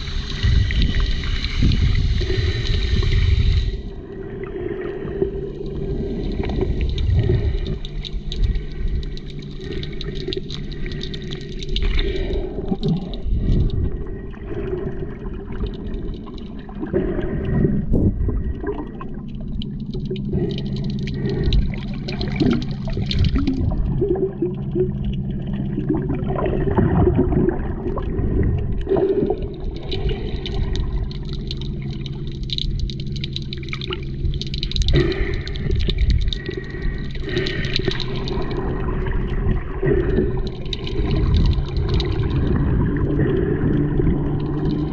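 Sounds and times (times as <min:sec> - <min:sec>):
muffled water rushing underwater: 0:00.0 - 0:44.9
steady low hum: 0:00.0 - 0:44.9
crackling: 0:05.6 - 0:14.4, 0:18.6 - 0:25.6, 0:28.8 - 0:44.9.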